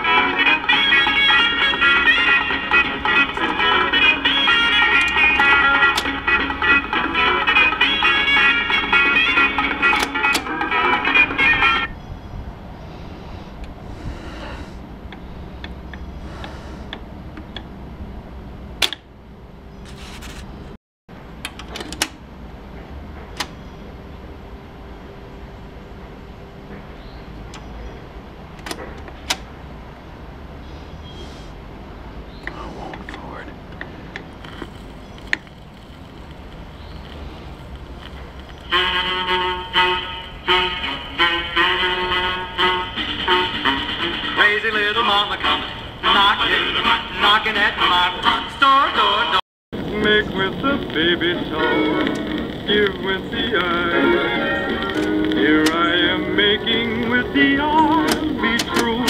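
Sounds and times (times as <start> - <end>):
record player noise: 0.0 - 11.9, 21.3 - 23.6, 32.4 - 41.1, 46.2 - 59.0
music with sustained notes: 0.0 - 12.0, 38.7 - 48.4, 49.9 - 59.0
record player click: 4.9 - 6.2, 9.8 - 10.6, 18.8 - 19.1, 21.4 - 22.2, 23.3 - 23.6, 28.6 - 29.5, 51.9 - 53.9, 54.7 - 56.2, 56.9 - 59.0.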